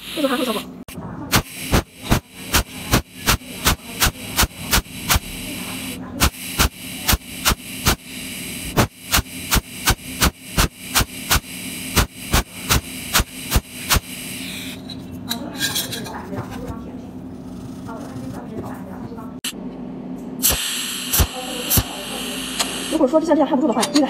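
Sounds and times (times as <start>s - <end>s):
electrical hum and hiss: 0.0s - 23.7s
welding machine sharp clicks: 1.3s - 14.4s, 20.4s - 23.0s.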